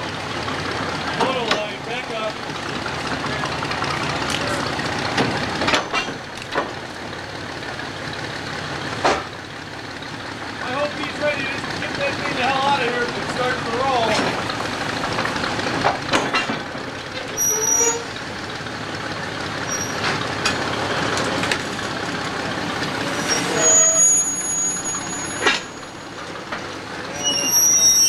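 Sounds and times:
steam engine running: 0.0 - 28.0
steel wheels clanking on rails: 0.0 - 28.0
wheels squealing: 9.8 - 18.8, 19.4 - 28.0.

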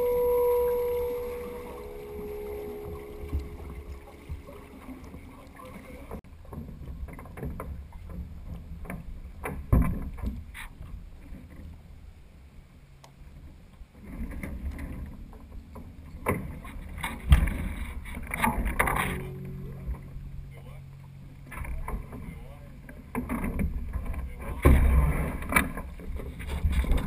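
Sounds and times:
water lapping against boat hull: 0.0 - 27.0
wind rumble on microphone: 0.0 - 27.0
sharp knocks from boat: 6.4 - 11.7, 14.0 - 20.2, 22.9 - 27.0.

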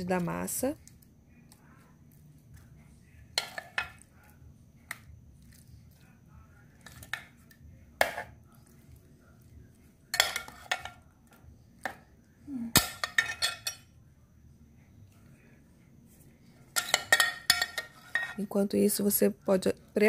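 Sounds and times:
utensil scraping a dish: 16.7 - 18.5.

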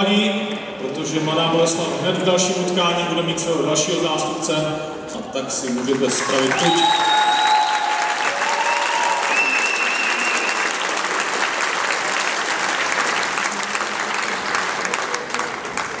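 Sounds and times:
audience applauding: 5.6 - 16.0.

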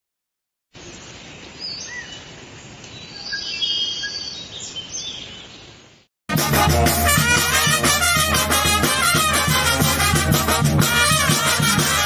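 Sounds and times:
birds chirping: 0.9 - 6.1
wind band with brass: 6.3 - 12.0.

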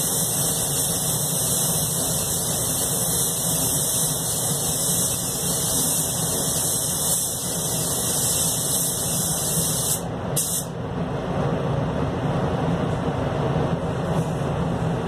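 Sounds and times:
spray gun hissing: 0.0 - 10.7
steady low rumble: 10.0 - 15.0.

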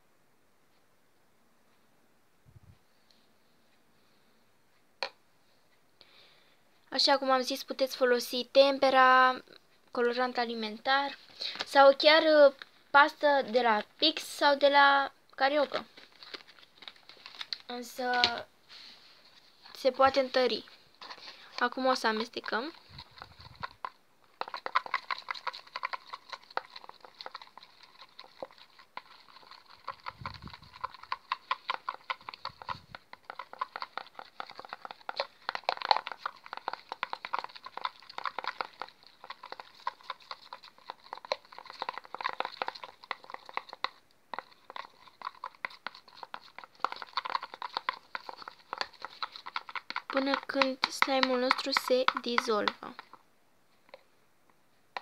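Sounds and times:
stick scraping plastic bowl: 19.2 - 53.2.

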